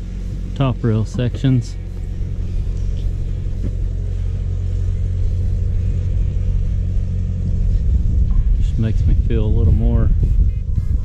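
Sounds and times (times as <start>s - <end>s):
constant hum: 0.0s - 11.0s
low mechanical rumble: 0.0s - 11.0s.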